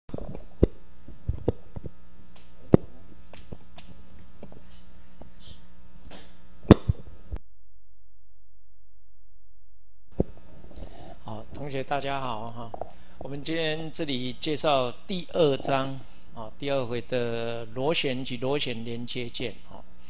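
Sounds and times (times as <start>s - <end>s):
electrical hum: 0.1s - 20.0s
microphone handling knocks: 6.7s - 7.0s.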